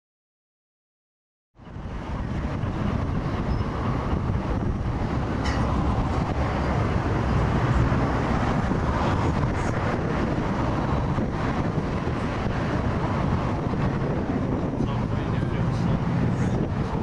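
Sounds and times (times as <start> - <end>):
distant steam locomotives working: 1.6 - 11.1
wind buffeting microphone: 1.6 - 17.0.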